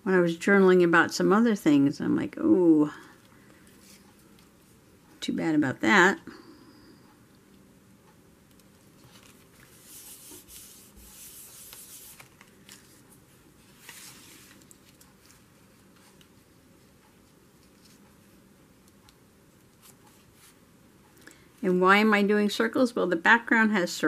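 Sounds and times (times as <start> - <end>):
paper rustling and rubbing: 8.9 - 16.3.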